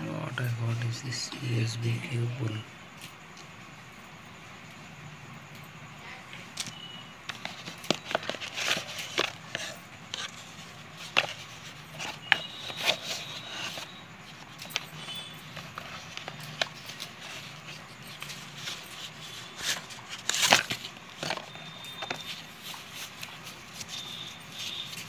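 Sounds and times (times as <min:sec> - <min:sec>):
cardboard being handled: 0:07.3 - 0:25.0.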